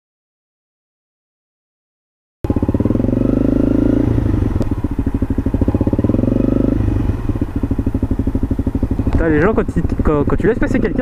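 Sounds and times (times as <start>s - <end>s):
motorcycle engine revving: 2.4s - 11.0s.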